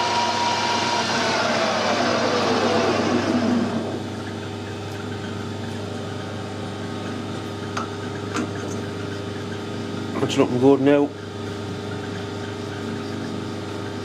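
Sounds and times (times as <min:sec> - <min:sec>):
lathe winding down whine: 0:00.0 - 0:08.2
steady low hum: 0:00.0 - 0:14.0.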